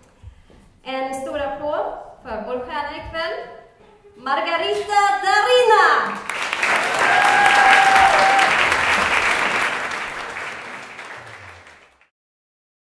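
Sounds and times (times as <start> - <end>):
audience applauding: 6.2 - 12.1.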